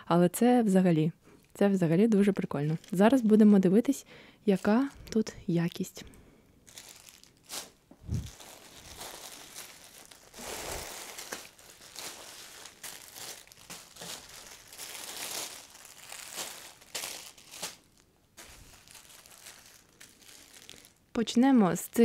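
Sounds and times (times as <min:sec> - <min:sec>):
plastic bags crinkling: 0:02.4 - 0:03.7, 0:04.5 - 0:05.4, 0:06.6 - 0:22.0.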